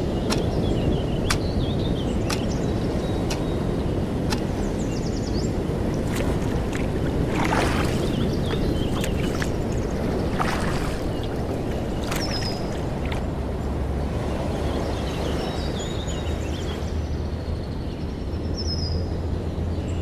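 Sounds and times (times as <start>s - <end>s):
wind: 0.0s - 20.0s
water noise: 3.0s - 17.0s.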